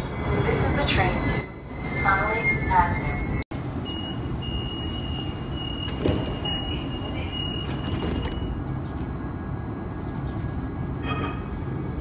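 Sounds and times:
high warning tone: 0.0s - 8.5s
low train hum: 0.0s - 12.0s.

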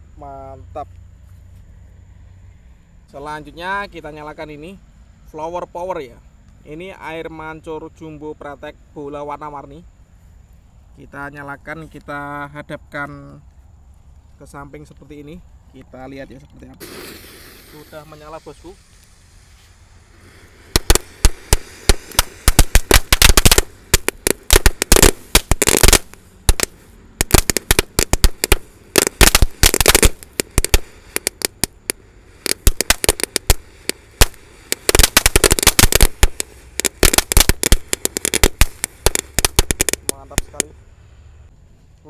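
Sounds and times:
crackling firework sharp cracks: 16.8s - 40.7s.

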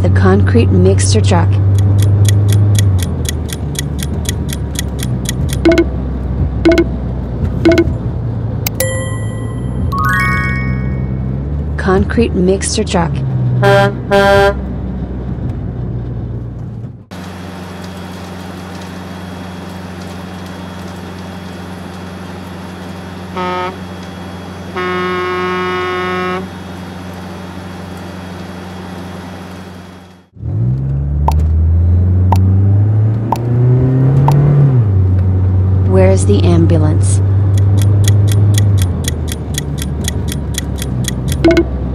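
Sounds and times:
truck engine running: 0.0s - 30.4s, 35.1s - 41.9s
truck horn honking: 13.6s - 14.7s, 23.3s - 23.8s, 24.7s - 26.6s
engine revving up: 30.4s - 35.1s.

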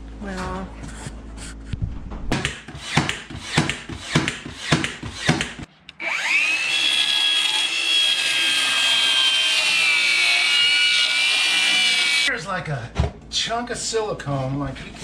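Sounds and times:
cordless power tool whining: 2.7s - 12.3s.

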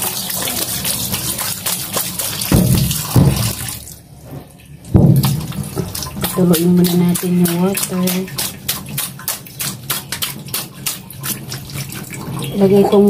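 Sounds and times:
tap water splashing: 0.0s - 12.6s
low thuds: 2.5s - 3.7s.

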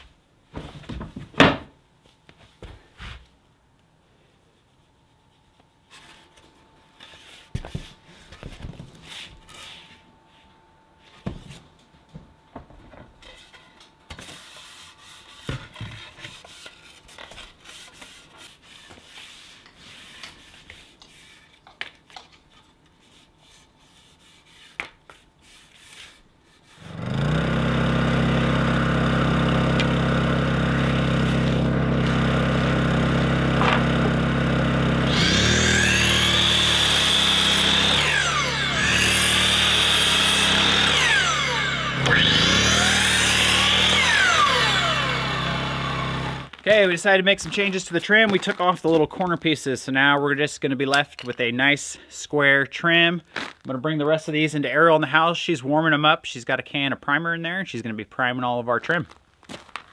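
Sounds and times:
rag rubbing wooden boards: 14.1s - 21.6s, 23.0s - 26.9s
portable generator humming: 26.9s - 46.6s.

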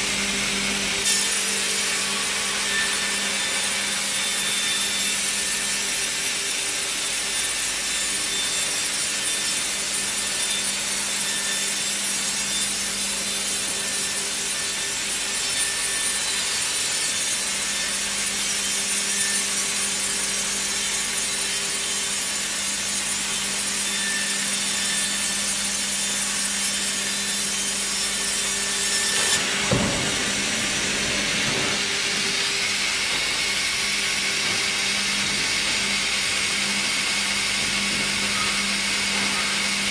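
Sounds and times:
machine hum: 28.8s - 38.2s.

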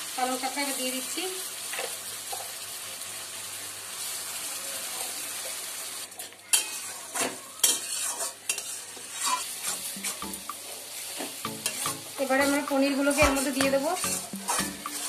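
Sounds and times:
spinach sizzling in hot oil: 0.0s - 15.0s
metal spatula scraping a pan: 6.5s - 15.0s.

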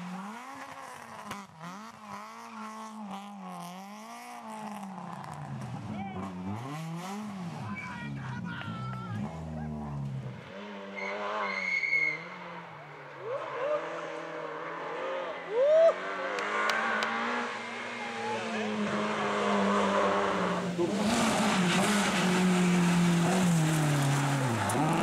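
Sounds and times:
rally car engines revving: 0.0s - 25.0s
tyre squeals: 10.9s - 12.4s.

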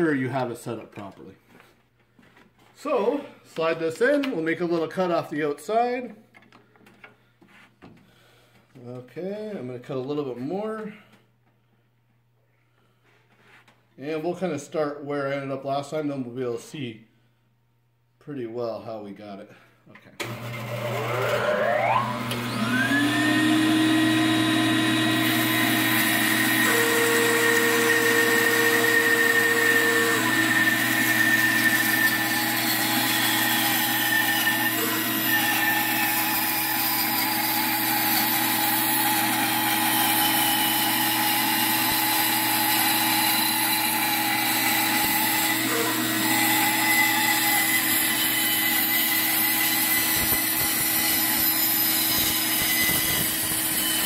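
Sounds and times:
bandsaw blade cutting wood: 20.2s - 54.0s
bandsaw motor running: 20.2s - 54.0s.

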